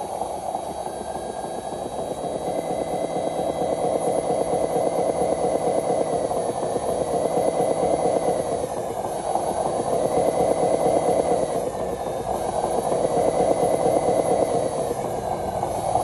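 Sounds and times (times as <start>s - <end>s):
model truck motor running: 0.0s - 16.0s
thin high whine: 0.0s - 16.0s.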